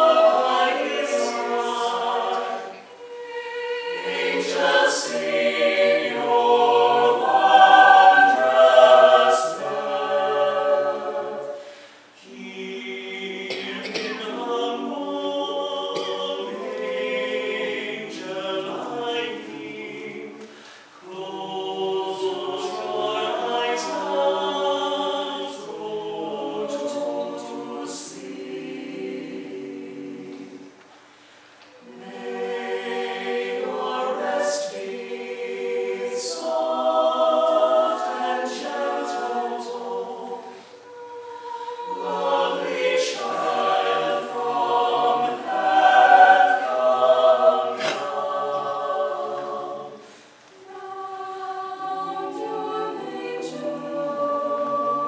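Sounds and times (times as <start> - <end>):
choir singing a cappella: 0.0 - 55.0
singers breathing: 11.5 - 12.2, 20.4 - 21.0, 31.0 - 31.6, 50.0 - 50.5.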